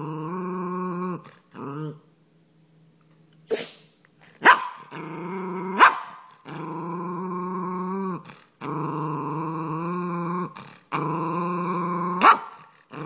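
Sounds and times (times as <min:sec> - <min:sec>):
dog growling low: 0:00.0 - 0:02.1, 0:04.2 - 0:05.8, 0:06.4 - 0:13.0
dog yapping: 0:04.4 - 0:04.8, 0:05.8 - 0:06.3, 0:12.2 - 0:12.6
dog barking: 0:04.4 - 0:04.9, 0:05.8 - 0:06.3, 0:12.2 - 0:12.6.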